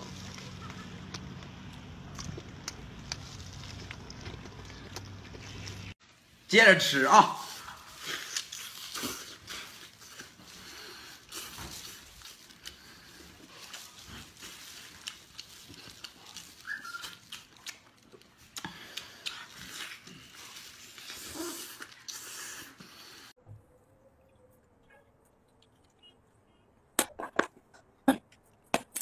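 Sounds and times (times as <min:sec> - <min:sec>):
wet chewing and lip smacking: 0:01.0 - 0:06.0, 0:07.9 - 0:23.0.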